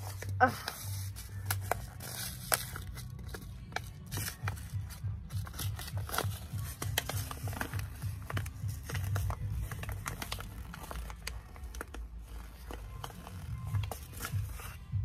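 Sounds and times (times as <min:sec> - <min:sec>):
paper seed packet crinkling: 0:00.0 - 0:14.8.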